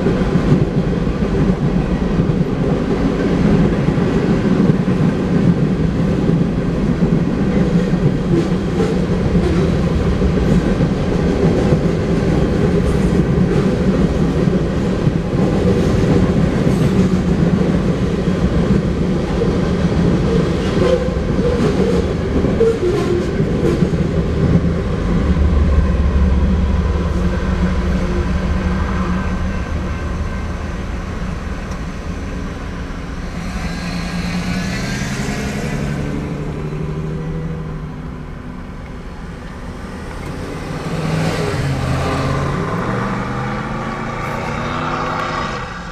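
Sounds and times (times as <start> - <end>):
diesel locomotive rumbling: 0.0 - 45.9
vehicles driving over crossing: 29.4 - 45.9
car engine accelerating: 32.4 - 38.4.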